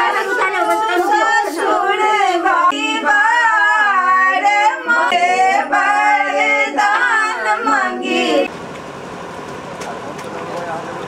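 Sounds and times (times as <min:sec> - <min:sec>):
women singing without instruments: 0:00.0 - 0:08.5.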